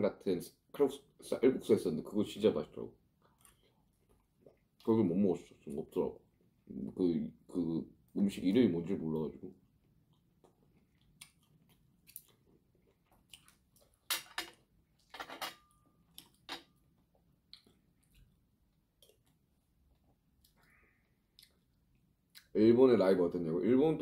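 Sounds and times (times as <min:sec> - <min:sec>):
person chewing: 0:03.2 - 0:04.9, 0:09.7 - 0:15.1, 0:16.0 - 0:22.5.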